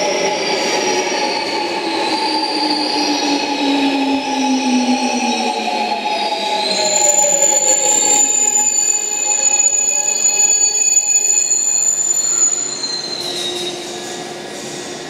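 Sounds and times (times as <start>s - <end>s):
train brakes squealing: 0.0s - 15.0s
train whine falling in pitch: 2.3s - 14.0s.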